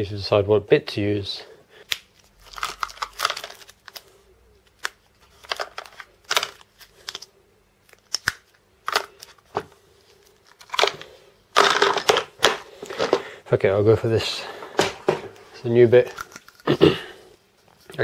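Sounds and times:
packaging crinkling and rustling: 2.0 - 13.3
small cases clicking and knocking: 10.6 - 13.3.

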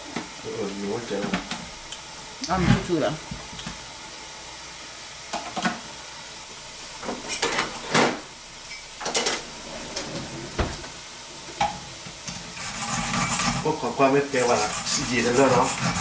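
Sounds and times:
kitchen utensils clattering: 7.2 - 8.1, 9.0 - 10.4.

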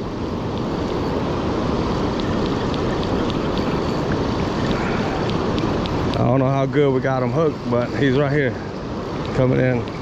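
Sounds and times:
fast-flowing river water: 0.0 - 10.0
faint irregular ticks: 2.1 - 6.2.

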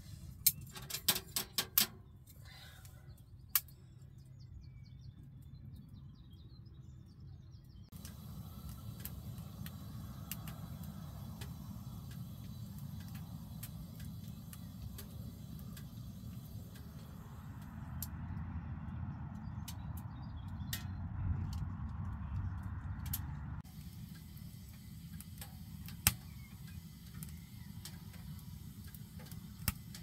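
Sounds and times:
low fire rumble: 4.3 - 30.0
wood fire crackling: 7.9 - 20.8, 23.1 - 30.0.

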